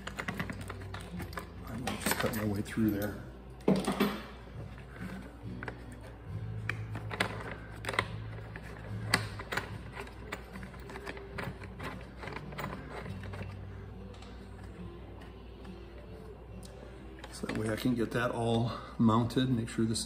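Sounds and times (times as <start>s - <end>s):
plastic and metal parts clicking: 5.6s - 14.4s.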